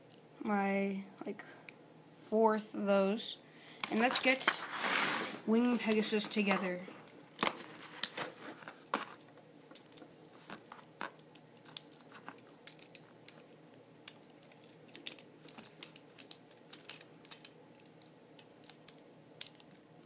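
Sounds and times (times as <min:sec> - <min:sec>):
small toy parts clicking together: 0:11.0 - 0:19.9.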